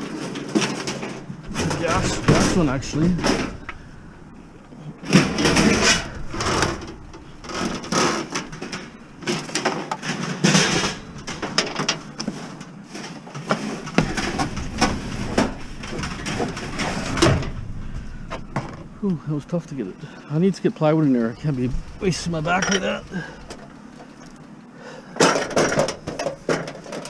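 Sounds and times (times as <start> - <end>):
metal oven scraping and knocking: 0.0 - 4.0, 4.9 - 19.1.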